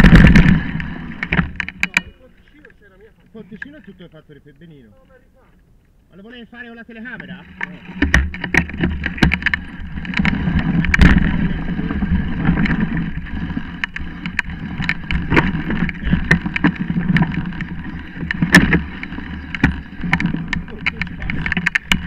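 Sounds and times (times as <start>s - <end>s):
bike tyres rumbling on dirt: 0.0s - 2.0s, 7.0s - 22.0s
bike rattling over bumps: 0.0s - 3.8s, 6.9s - 22.0s.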